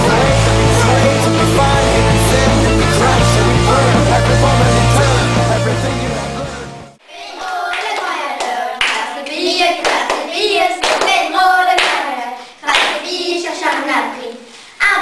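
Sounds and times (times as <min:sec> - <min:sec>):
girls singing together: 0:07.0 - 0:15.0
hand claps: 0:07.7 - 0:09.0, 0:09.8 - 0:11.2, 0:11.8 - 0:12.0, 0:12.7 - 0:13.0.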